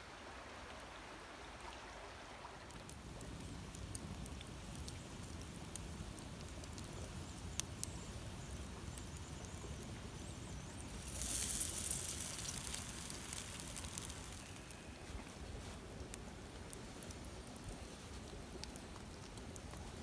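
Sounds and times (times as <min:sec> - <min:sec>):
campfire embers crackling: 0:02.6 - 0:20.0
fire hiss: 0:03.0 - 0:18.3
sharp fire pops: 0:11.0 - 0:14.9.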